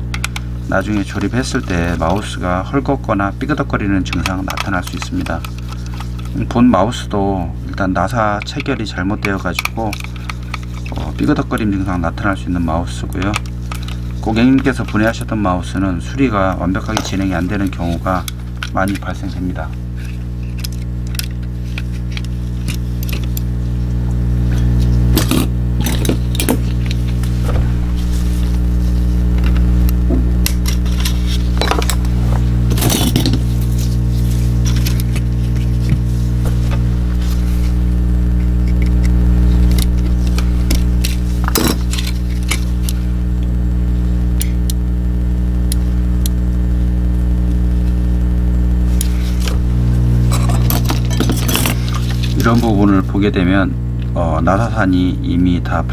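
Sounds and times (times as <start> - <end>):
steady low hum: 0.0 - 55.9
steady low drone: 16.9 - 45.8, 47.0 - 53.1.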